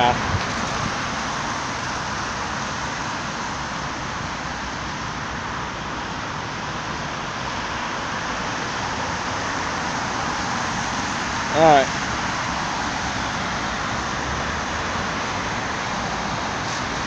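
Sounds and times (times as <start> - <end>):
cars on a wet road: 0.0 - 17.0.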